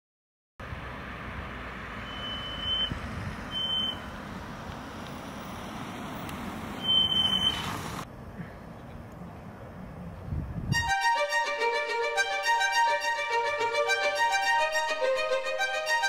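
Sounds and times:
traffic hiss and rumble: 0:00.6 - 0:10.9
high beep: 0:02.0 - 0:02.9, 0:03.6 - 0:04.0, 0:06.8 - 0:07.6.

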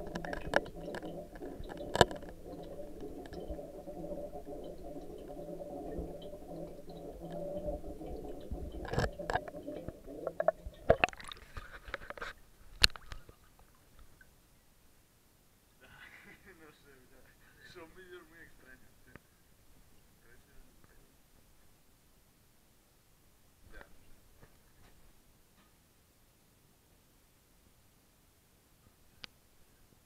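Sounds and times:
muffled underwater rush: 0:00.0 - 0:12.2
water splashing: 0:00.0 - 0:13.4.

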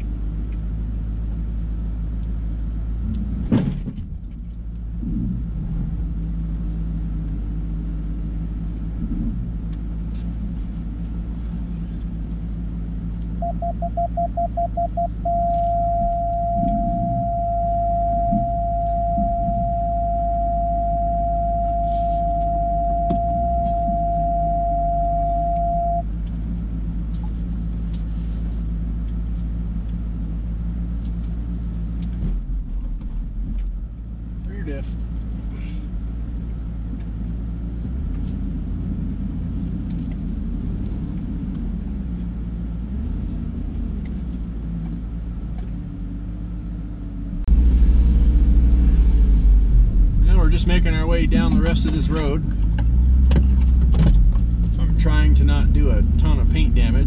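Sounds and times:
truck engine running: 0:00.0 - 0:57.0
electronic warning beeps: 0:13.4 - 0:26.1.

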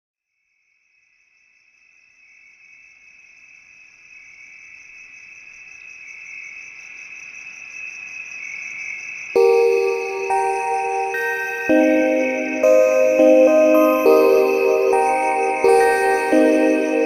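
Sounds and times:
high cricket-like trill: 0:09.4 - 0:17.0.

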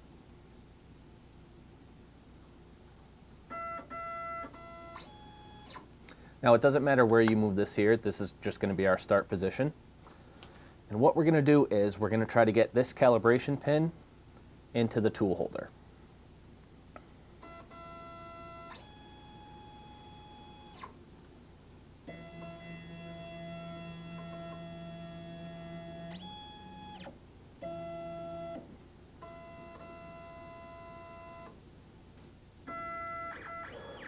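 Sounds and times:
stepper motors whining: 0:22.1 - 0:28.6.

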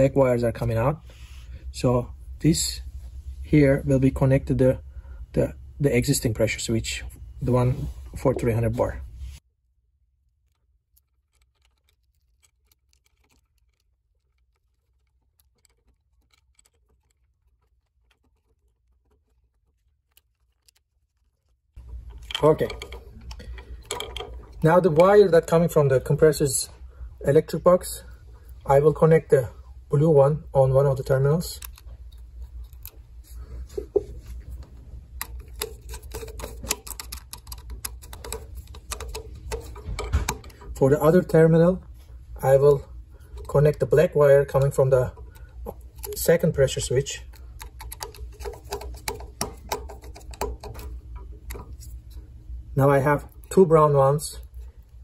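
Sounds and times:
low steady hum: 0:00.0 - 0:55.0
screwdriver clicks and scrapes: 0:10.5 - 0:25.2, 0:31.6 - 0:41.2, 0:43.2 - 0:52.3.

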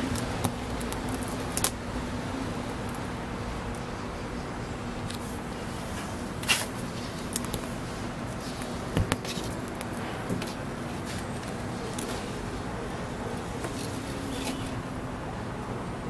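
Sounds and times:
steady low hum: 0:00.0 - 0:16.0
cats scuffling and pawing: 0:05.1 - 0:14.8.

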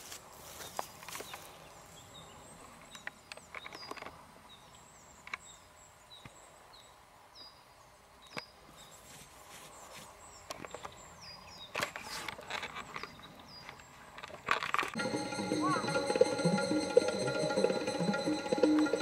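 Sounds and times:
footsteps on forest floor: 0:00.0 - 0:01.6.

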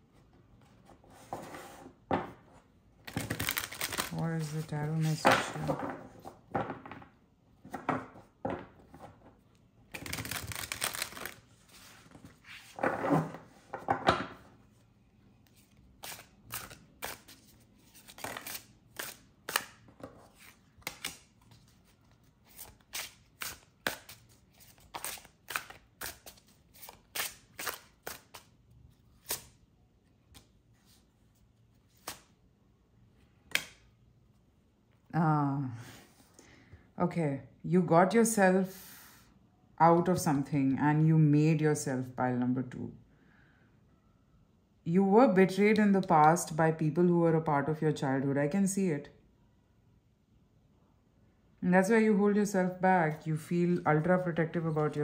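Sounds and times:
cards shuffling: 0:03.0 - 0:05.6, 0:09.9 - 0:13.6, 0:15.4 - 0:29.6, 0:31.8 - 0:32.4.

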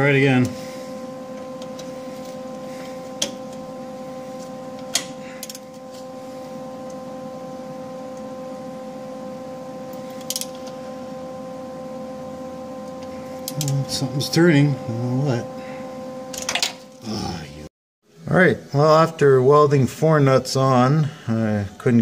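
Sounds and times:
steady hum: 0:00.0 - 0:22.0.

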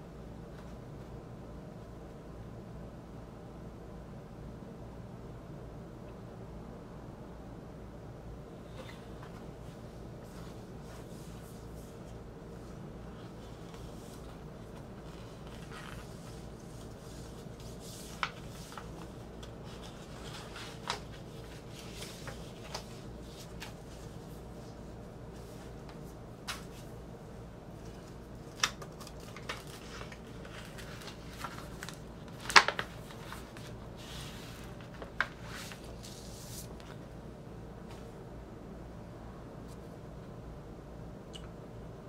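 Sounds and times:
steady low hum: 0:00.0 - 0:42.0
paper rustling: 0:08.7 - 0:27.0, 0:27.7 - 0:37.2.

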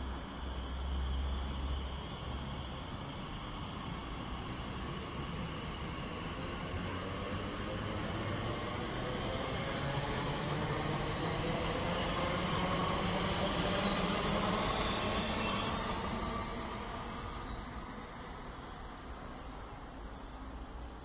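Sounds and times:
low train motor tone: 0:00.0 - 0:21.0
train wheels rumbling over rails: 0:02.6 - 0:19.8.

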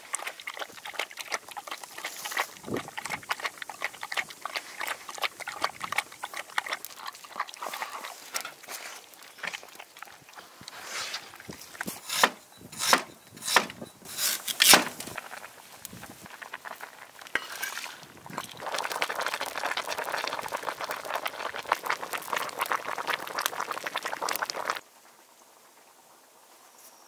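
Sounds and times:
stew bubbling at the boil: 0:00.0 - 0:24.9
wood fire crackling: 0:13.5 - 0:24.8.

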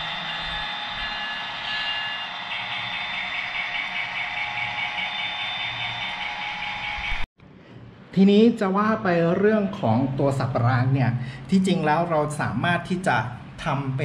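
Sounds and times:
model train diesel engine sound: 0:00.0 - 0:07.2.

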